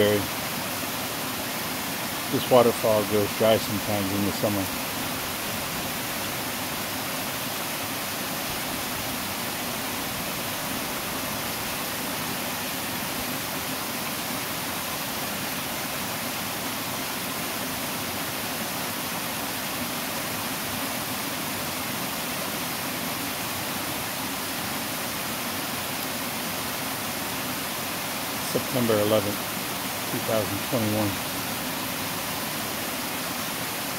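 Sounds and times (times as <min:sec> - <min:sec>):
waterfall rushing over boulders: 0:00.0 - 0:33.9.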